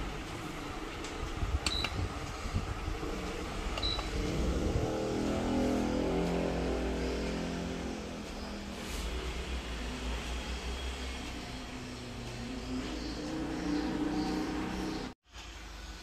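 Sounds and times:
motor hum with steady tones: 0.0s - 15.2s
fan running: 0.0s - 16.0s
control panel beeping: 1.6s - 2.0s, 3.8s - 4.2s.

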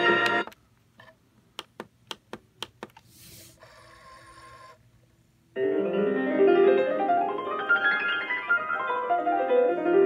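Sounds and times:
piano music from speaker: 5.6s - 10.0s.

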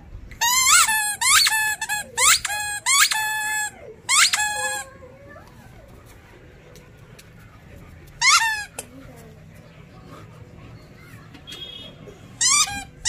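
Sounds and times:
rubber toy ball squeaking: 0.4s - 4.9s, 8.2s - 8.8s, 12.4s - 13.0s.

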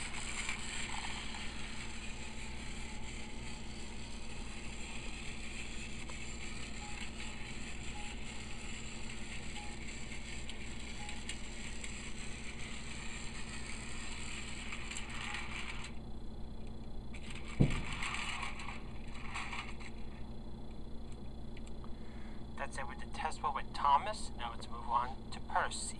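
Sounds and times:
toy train motor whir: 0.0s - 16.0s, 17.1s - 20.0s.

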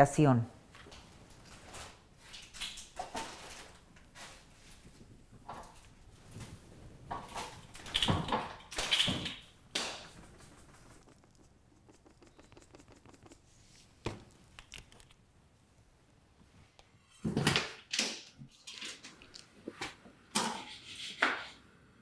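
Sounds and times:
rustling and scraping: 0.8s - 15.2s.

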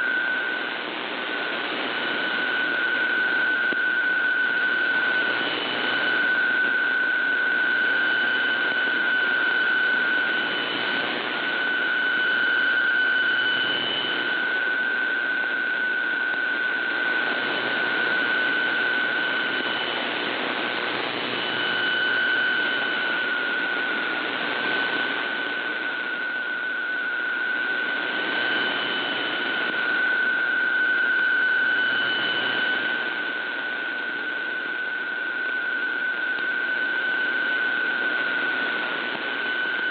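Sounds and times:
steady data tone: 0.0s - 39.9s
radio static hiss: 0.1s - 3.8s, 16.3s - 39.9s.

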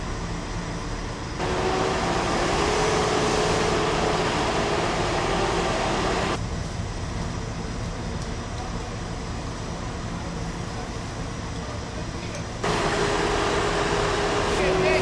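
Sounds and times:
heavy machinery engine rumble: 0.0s - 15.0s
hissing mechanical noise: 1.2s - 6.4s, 12.0s - 15.0s.

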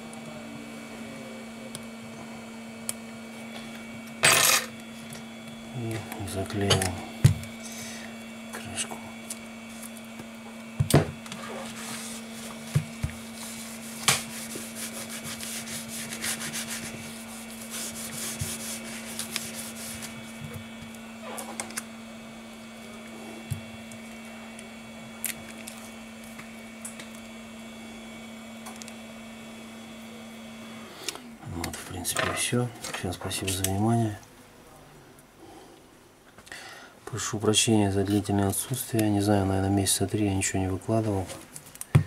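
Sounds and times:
steady low hum: 0.0s - 42.0s
hands rubbing phone glass: 11.6s - 20.4s.

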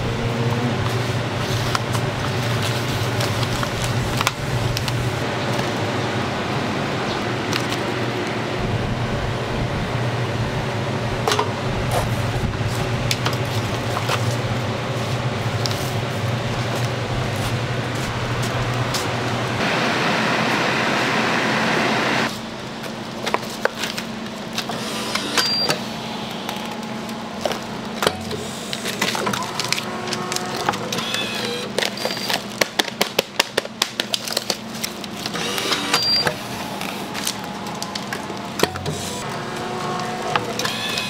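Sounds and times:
steady low hum: 0.0s - 31.8s.

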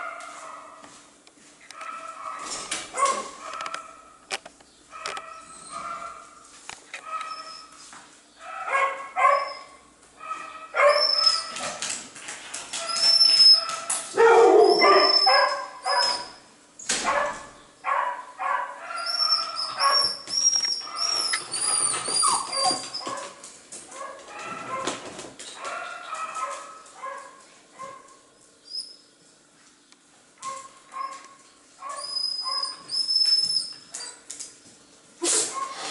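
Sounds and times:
dog barking and yipping: 1.7s - 4.1s, 4.9s - 6.4s, 7.0s - 7.5s, 8.4s - 11.8s, 12.8s - 16.4s, 17.0s - 25.0s, 25.6s - 28.2s, 30.4s - 33.1s
dog whining: 9.2s - 9.8s, 10.8s - 11.8s, 12.8s - 16.4s, 18.9s - 23.3s, 31.9s - 34.3s.

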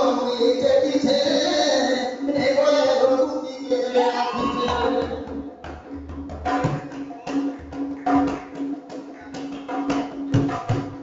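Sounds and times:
barrel drum beaten by hand: 4.4s - 11.0s.

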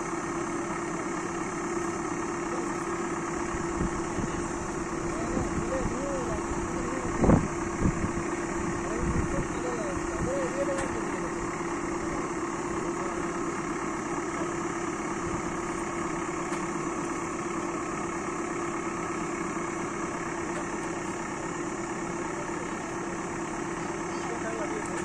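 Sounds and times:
diesel engine idling: 0.0s - 25.0s.

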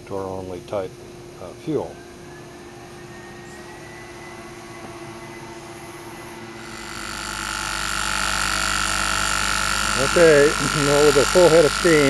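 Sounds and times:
high steady whine and hiss: 0.0s - 12.0s
model steam engine running: 6.6s - 12.0s.

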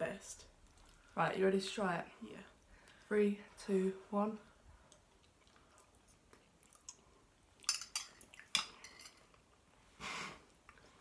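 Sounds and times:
cutlery clinking on ceramic bowls: 7.6s - 9.2s.

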